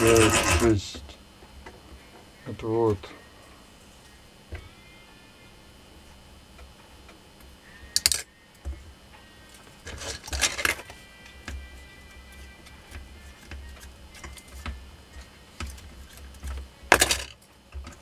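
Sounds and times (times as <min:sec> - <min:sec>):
wire rustling and scraping: 0:00.0 - 0:01.0, 0:09.6 - 0:11.0.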